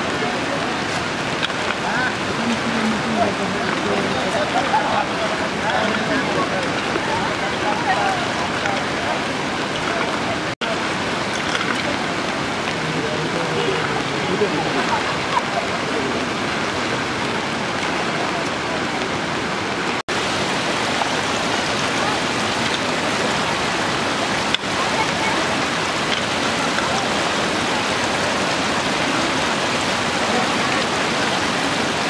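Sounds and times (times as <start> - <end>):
falling rain: 0.0 - 32.0
rushing floodwater: 0.0 - 32.0.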